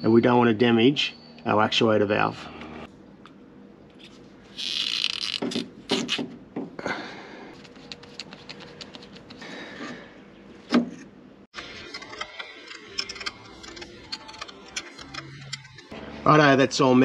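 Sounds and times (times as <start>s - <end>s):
hose rubbing and scraping: 11.6s - 16.0s.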